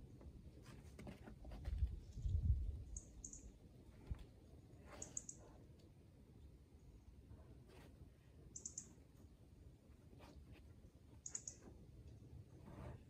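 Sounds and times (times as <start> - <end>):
high-pitched bird chirps: 8.6 - 8.9, 11.2 - 11.6.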